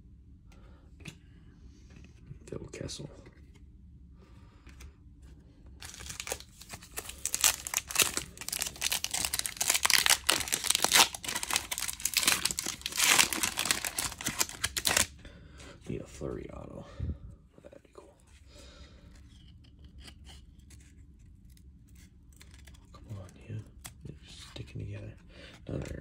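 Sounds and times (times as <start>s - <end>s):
foil wrapper tearing and crinkling: 5.8s - 15.1s.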